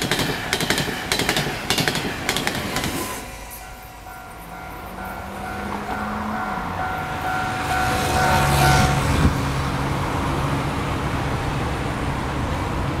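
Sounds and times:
road traffic: 0.0s - 13.0s
crossing bell two-tone chime: 3.4s - 9.1s.

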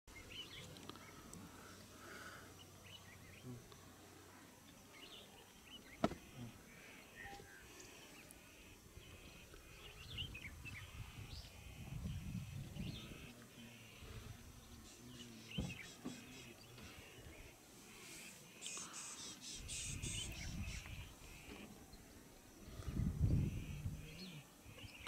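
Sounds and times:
sharp knock: 6.0s - 6.2s
bird chirps and calls: 18.1s - 21.7s.

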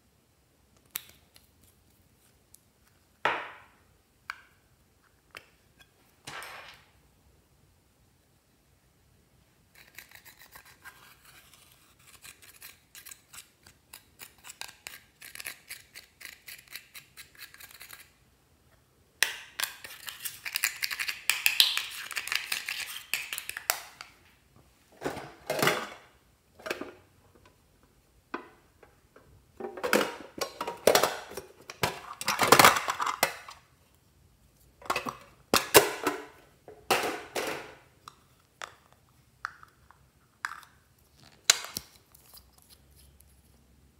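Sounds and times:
light scratching of eyeshadow: 9.7s - 18.2s, 19.7s - 23.5s.

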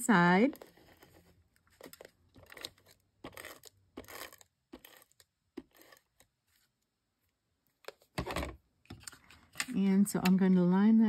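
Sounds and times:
paper handling: 0.4s - 6.7s.

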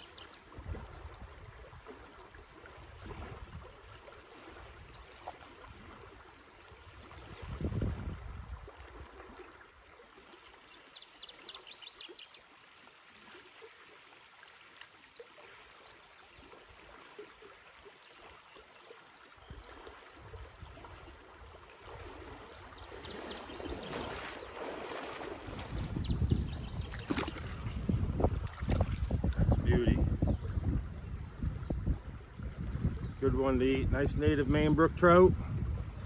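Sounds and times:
legs wading through water: 0.0s - 33.6s
river current rushing: 19.6s - 26.0s.

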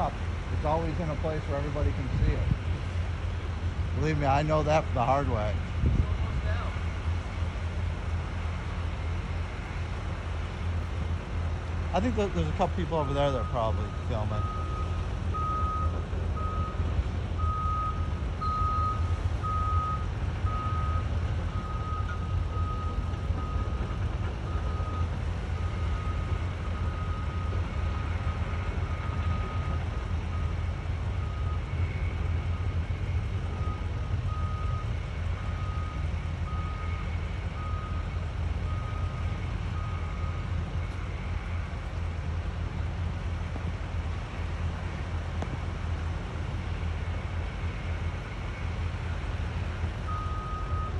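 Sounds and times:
steady low rumble: 0.0s - 50.9s
backup alarm beeping: 12.8s - 41.0s, 50.1s - 50.9s.

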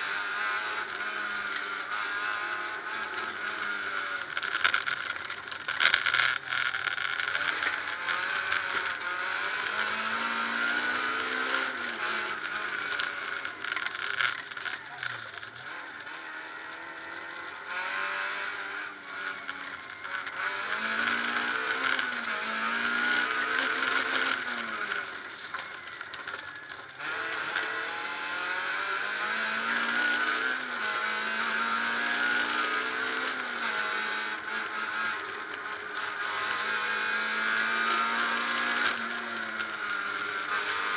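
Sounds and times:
car engine revving through gears: 0.0s - 40.9s.

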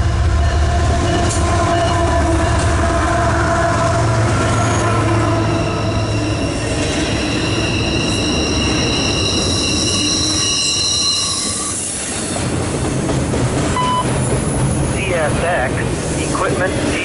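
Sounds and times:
train wheels rumbling on rail: 0.0s - 17.0s
high ringing wheel squeal: 4.6s - 12.0s.

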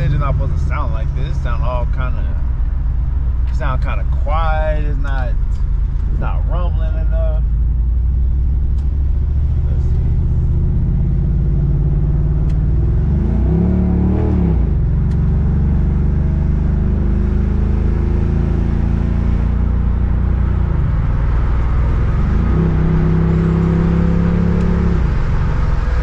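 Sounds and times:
car engine accelerating hard: 7.7s - 26.0s.

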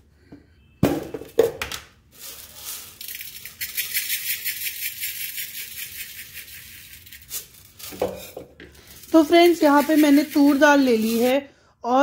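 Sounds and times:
dry lentils poured into metal pot: 2.1s - 11.4s.

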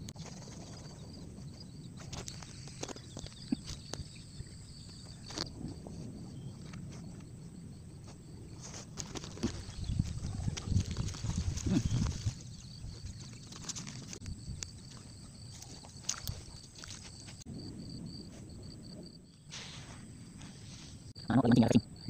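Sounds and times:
fishing tackle clicks and rustles: 8.6s - 17.4s.

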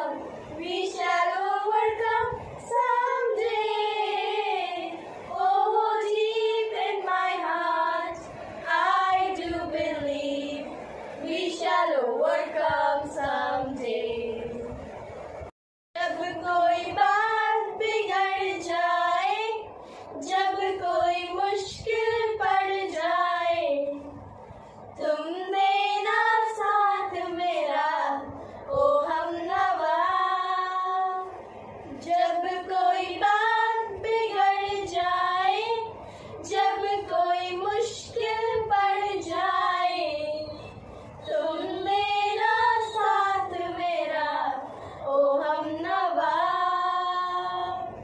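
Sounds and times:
girls singing together: 0.0s - 48.0s.

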